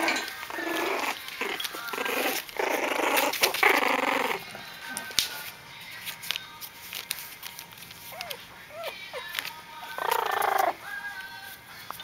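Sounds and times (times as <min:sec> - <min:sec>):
puppies whining and yelping: 0:00.0 - 0:04.5, 0:08.0 - 0:10.9
scrabbling: 0:00.0 - 0:04.5.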